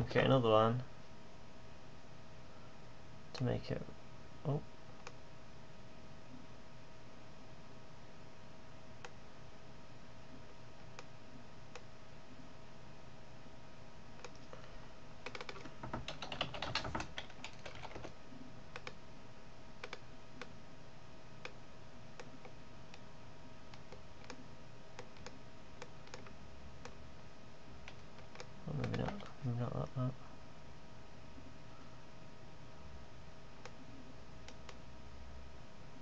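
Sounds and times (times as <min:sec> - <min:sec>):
faint hum: 0:00.0 - 0:36.0
keyboard typing: 0:14.2 - 0:19.0, 0:19.8 - 0:20.5, 0:23.7 - 0:24.4, 0:25.0 - 0:27.0, 0:27.8 - 0:29.3.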